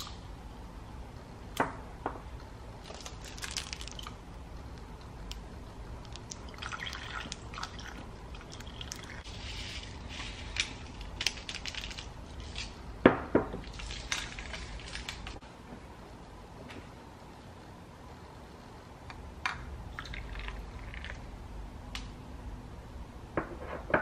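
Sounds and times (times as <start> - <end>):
milk pouring over ice: 6.5 - 10.0.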